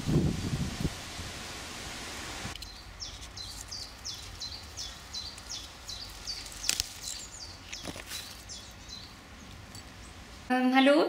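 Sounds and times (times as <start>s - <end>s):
stems snapping and rustling: 2.5s - 8.7s
bird chirping: 2.6s - 10.2s.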